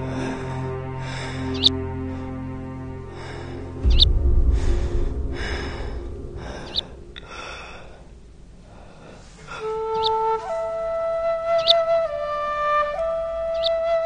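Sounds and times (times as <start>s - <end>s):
low rumble: 3.2s - 9.5s
flute melody: 9.5s - 14.0s.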